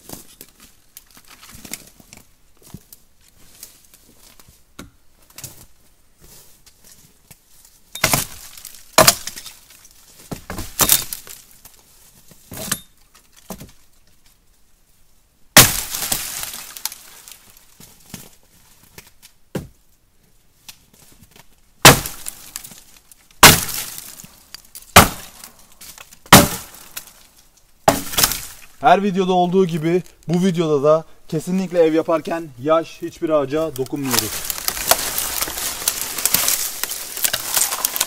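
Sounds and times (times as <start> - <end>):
dry wood snapping: 8.0 - 11.8, 15.6 - 18.3, 21.8 - 28.8, 33.7 - 38.0.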